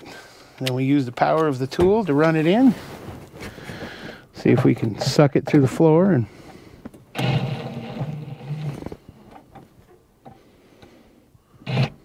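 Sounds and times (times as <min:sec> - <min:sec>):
power driver motor whirring: 0:07.1 - 0:08.8, 0:11.6 - 0:12.0.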